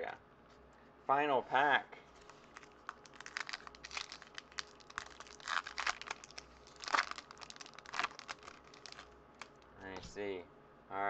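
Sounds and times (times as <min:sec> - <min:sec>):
wrapper crinkling being torn: 0:02.2 - 0:09.7.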